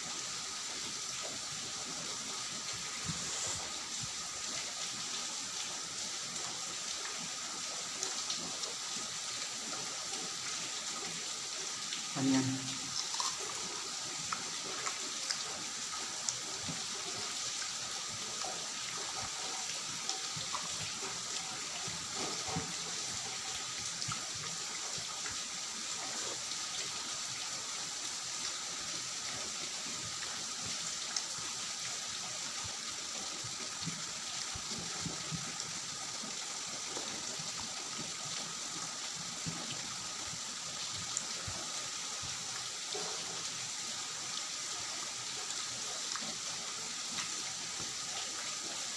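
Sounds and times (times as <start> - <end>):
steady hiss: 0.0 - 48.9
chewing: 12.9 - 15.5.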